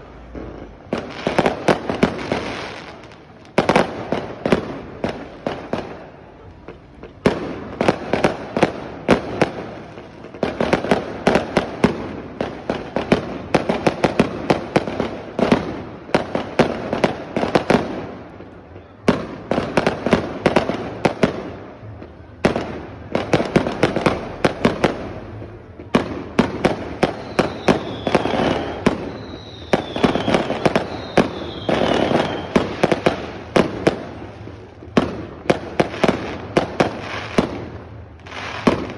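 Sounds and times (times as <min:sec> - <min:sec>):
fireworks bangs and crackles: 0:00.0 - 0:38.9
falling firework whistles: 0:26.9 - 0:33.2.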